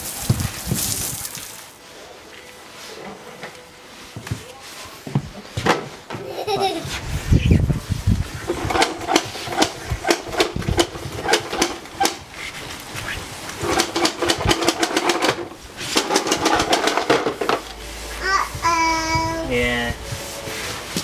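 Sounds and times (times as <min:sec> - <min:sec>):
scrubbing wet wood by hand: 0:08.4 - 0:21.0.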